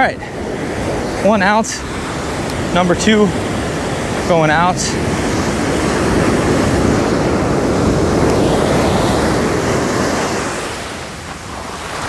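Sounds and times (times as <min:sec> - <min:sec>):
ocean surf breaking: 0:00.0 - 0:12.0
water washing through shallows: 0:00.0 - 0:12.0
wind buffeting microphone: 0:00.0 - 0:12.0.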